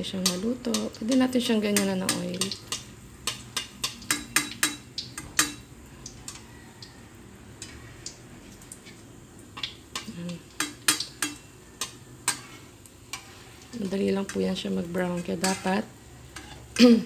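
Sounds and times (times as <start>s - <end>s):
faint frying sizzle: 0.0s - 17.0s
metal spatula scraping wok: 7.6s - 16.8s.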